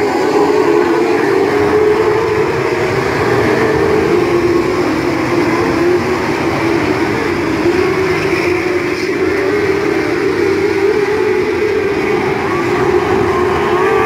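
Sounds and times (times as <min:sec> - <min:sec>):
race car engines droning: 0:00.0 - 0:14.0.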